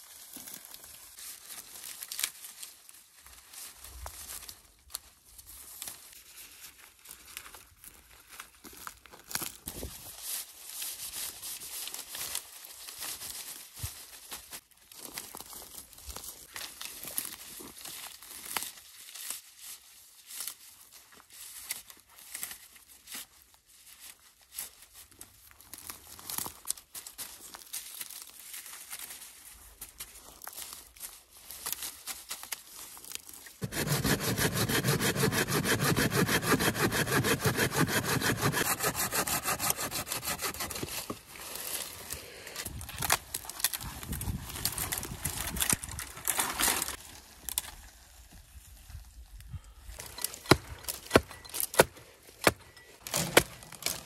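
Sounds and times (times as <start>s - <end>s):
dry brush cracking and rustling: 0.0s - 33.6s, 40.9s - 49.4s
dry reeds rustling and crackling: 0.0s - 33.6s, 41.0s - 49.4s.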